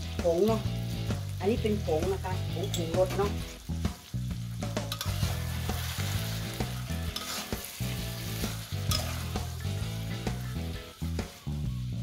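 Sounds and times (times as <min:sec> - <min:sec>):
food sizzling in a wok: 0:00.0 - 0:12.0
metal spatula scraping a wok: 0:04.7 - 0:10.4.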